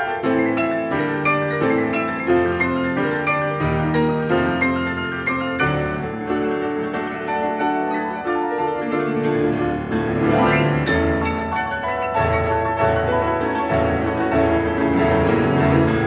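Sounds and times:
solo classical piano piece: 0.0 - 16.0.

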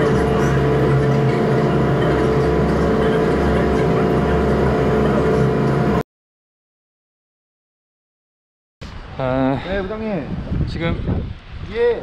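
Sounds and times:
ferry engines humming: 0.0 - 6.0.

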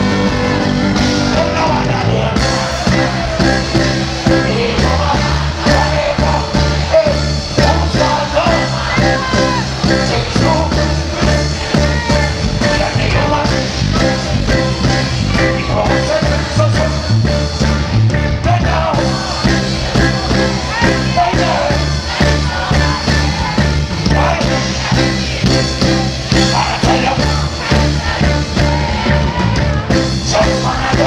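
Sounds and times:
live reggae band playing: 0.0 - 31.0
man singing: 1.3 - 23.4, 24.0 - 28.7, 29.6 - 31.0.

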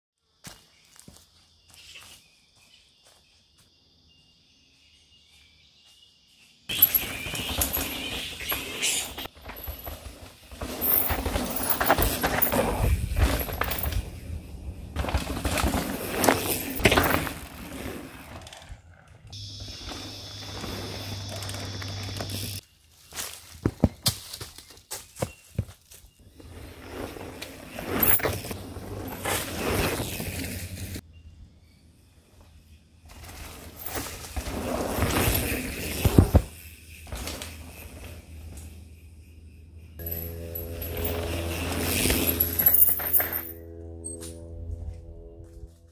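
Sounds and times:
bike tyres crunching on dirt: 6.7 - 31.0, 33.1 - 38.6, 40.0 - 43.4
bike clattering over bumps: 6.8 - 18.8
low hum: 11.7 - 17.7, 37.7 - 45.9.

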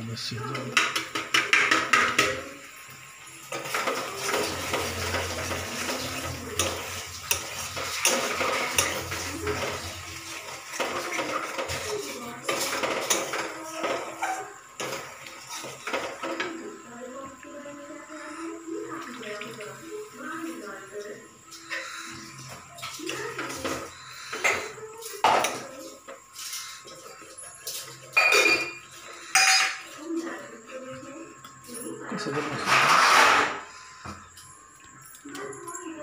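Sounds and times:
metal utensils clinking: 3.4 - 16.6, 21.5 - 30.4
metal spatula scraping a pan: 3.6 - 16.0, 32.3 - 33.9.

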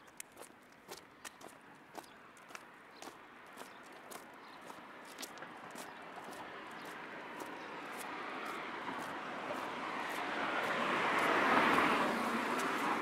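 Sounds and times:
car driving past: 8.1 - 13.0.

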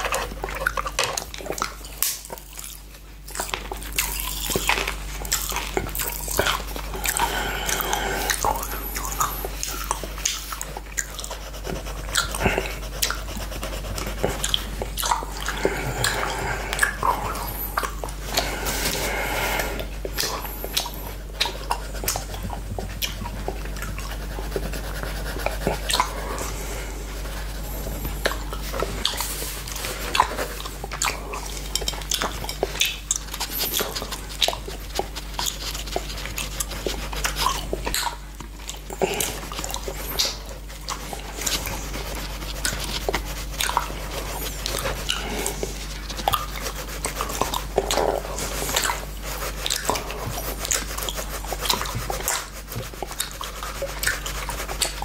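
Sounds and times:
wet tongue licking glass: 0.0 - 55.0
pencil scratching on paper: 24.1 - 30.6.

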